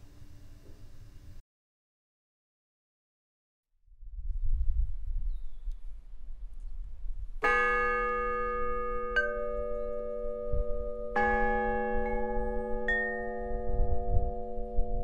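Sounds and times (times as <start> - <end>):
metal chimes ringing: 7.5 - 15.0.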